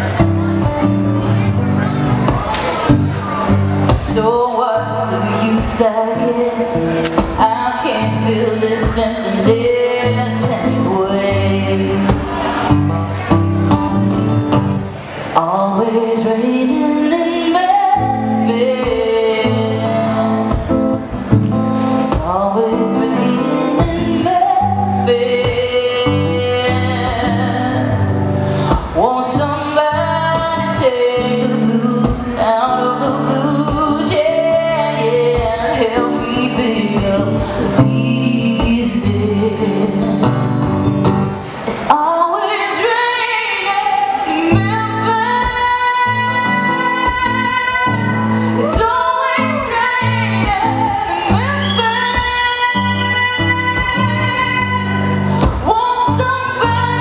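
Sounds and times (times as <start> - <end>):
woman singing: 3.9 - 12.9, 15.2 - 40.7, 41.7 - 57.0.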